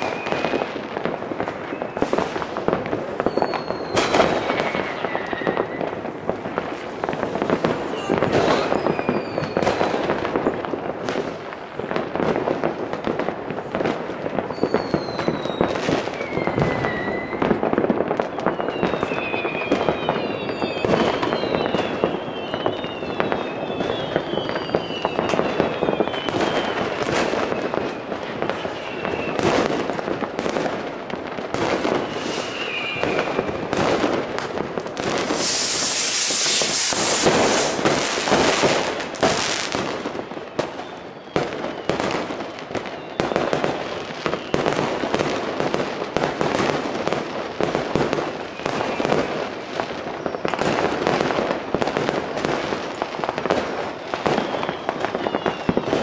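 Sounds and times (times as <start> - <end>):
falling firework whistles: 0.0 - 12.8, 13.6 - 56.0
firework bangs and crackles: 0.0 - 56.0
loud rushing hiss: 35.2 - 38.8.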